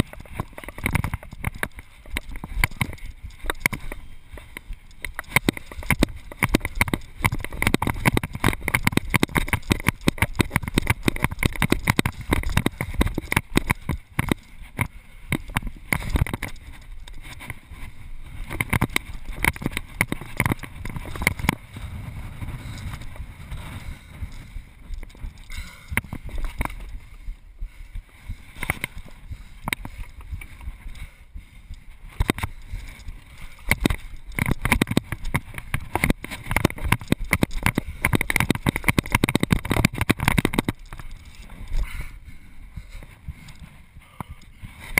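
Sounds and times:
steady low rumble: 20.6s - 34.4s.

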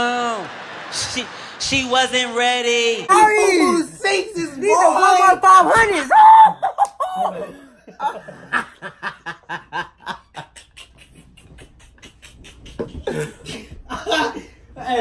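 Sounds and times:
boys laughing and giggling: 6.3s - 15.0s.

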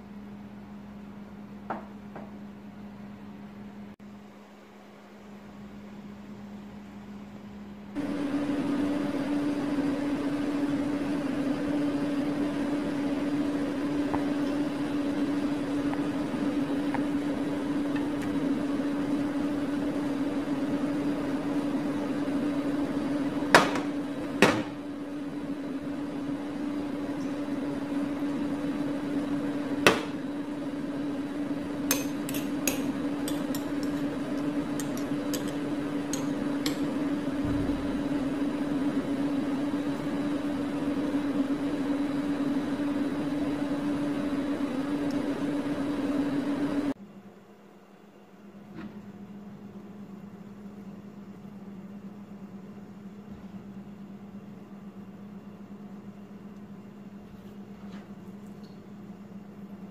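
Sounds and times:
motor humming: 8.0s - 47.0s.

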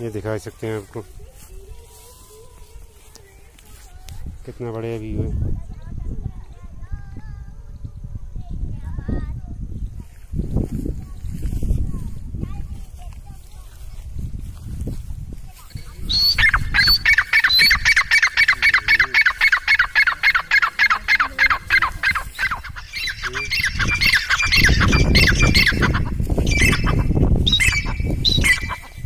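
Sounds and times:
bird calling in sharp notes: 16.0s - 29.0s.

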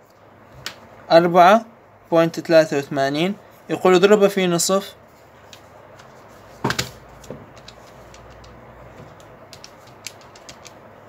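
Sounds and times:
calculator put down on clipboard: 6.6s - 7.4s
plastic calculator keys clicking: 7.5s - 10.8s.

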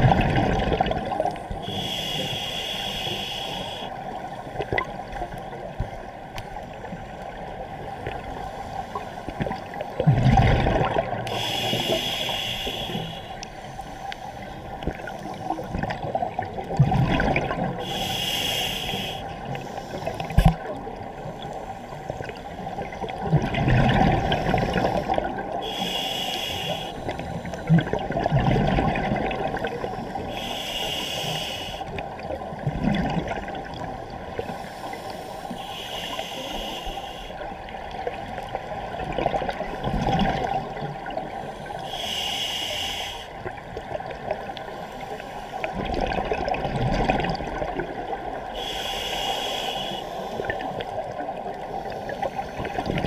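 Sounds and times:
exhaled bubbles gurgling: 0.0s - 3.9s, 9.3s - 13.2s, 14.8s - 21.4s, 22.2s - 31.0s, 31.8s - 34.6s, 35.7s - 41.4s, 45.6s - 49.5s, 50.3s - 53.0s
regulator hissing inhale: 1.6s - 4.1s, 11.2s - 15.6s, 17.8s - 20.4s, 24.3s - 27.8s, 29.8s - 32.0s, 34.4s - 37.4s, 41.4s - 43.4s, 44.6s - 45.7s, 48.5s - 52.8s.

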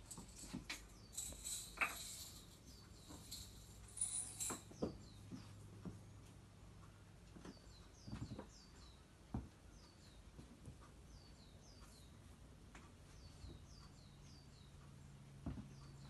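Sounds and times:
small bird chirping: 13.0s - 16.0s
soft knocks and thumps: 15.4s - 15.8s.

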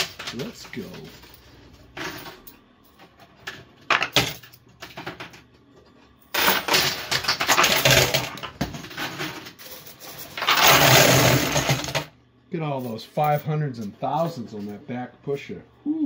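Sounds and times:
poker chips and coins clinking: 0.0s - 2.5s, 6.4s - 12.0s.

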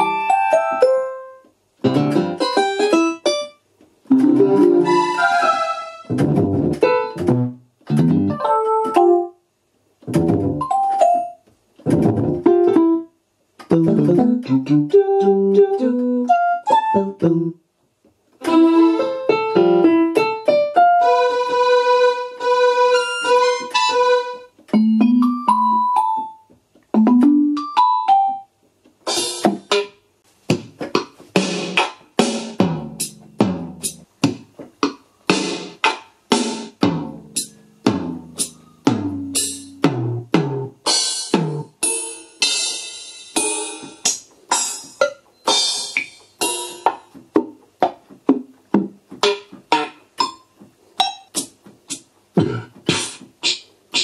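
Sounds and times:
electronic keyboard notes: 0.0s - 9.4s, 10.1s - 17.6s, 18.4s - 28.5s, 36.8s - 40.4s.

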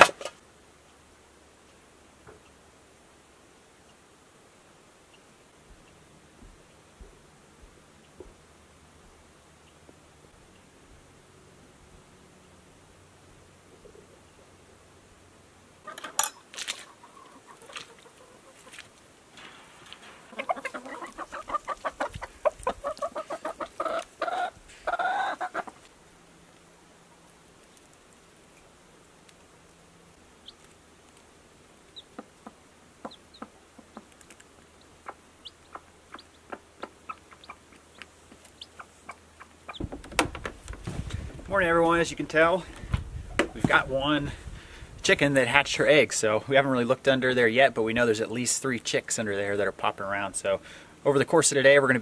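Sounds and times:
hen clucking: 15.8s - 19.0s, 20.0s - 25.9s, 30.4s - 40.4s
hen pecking plastic dish: 19.7s - 26.0s, 30.4s - 41.5s.

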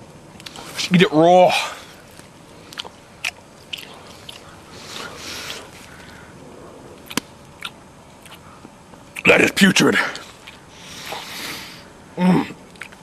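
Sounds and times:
wet mouth chewing: 0.4s - 0.8s, 1.9s - 6.2s, 7.0s - 9.3s, 10.1s - 11.7s, 12.6s - 13.0s.

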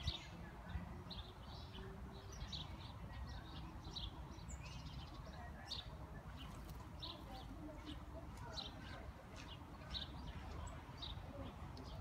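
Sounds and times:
low background noise: 0.0s - 12.0s
small birds chirping: 0.0s - 12.0s.

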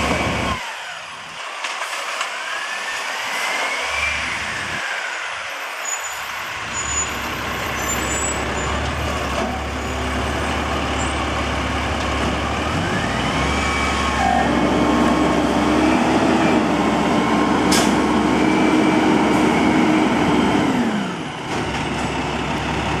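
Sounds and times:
diesel truck engine revving: 6.5s - 23.0s.

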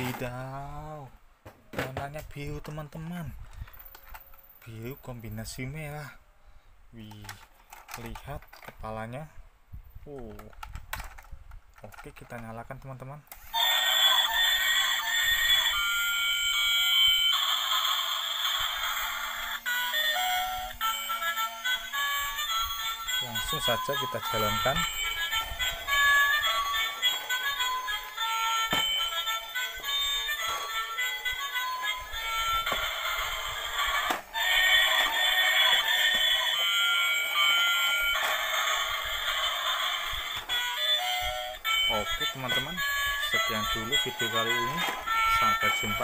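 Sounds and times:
tinny electronic toy tune: 13.5s - 46.0s.

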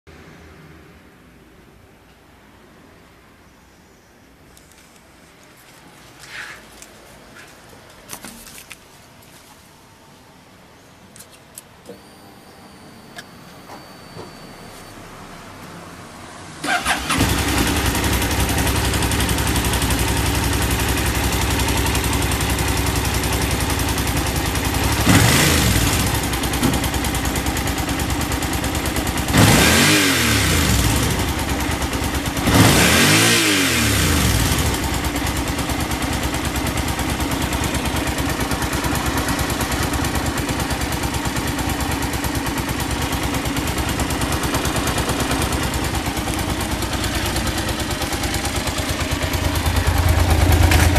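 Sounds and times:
engine revving: 16.6s - 23.0s, 24.4s - 26.8s, 29.2s - 35.5s, 43.8s - 50.9s
motorcycle engine idling: 16.6s - 50.9s.

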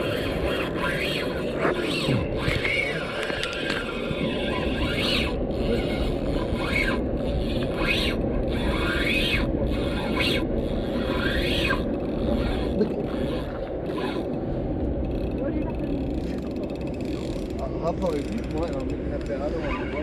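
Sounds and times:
fishing reel rasping whine: 0.0s - 14.4s, 15.0s - 20.0s.

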